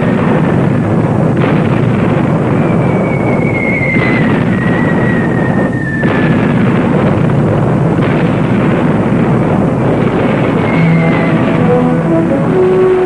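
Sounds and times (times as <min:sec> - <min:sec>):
rumble of explosions: 0:00.0 - 0:13.0
falling bomb whistle: 0:02.5 - 0:06.3, 0:10.5 - 0:13.0.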